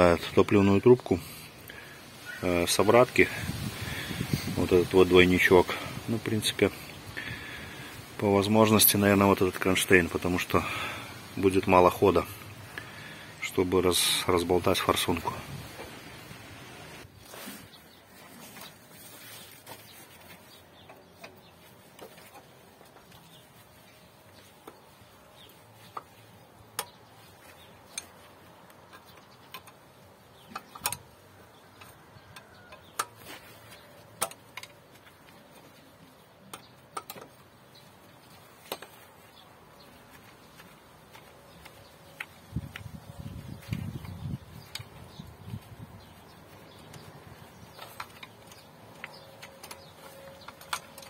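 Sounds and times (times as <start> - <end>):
hand tools clicking on metal: 24.5 - 35.7, 36.4 - 37.5, 40.2 - 51.0.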